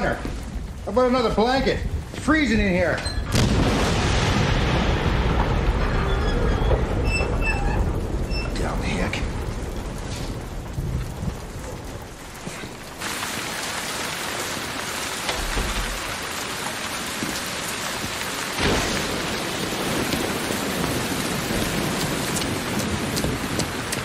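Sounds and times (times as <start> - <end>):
heavy rain pouring: 0.0 - 24.0
thunder clap: 0.0 - 24.0.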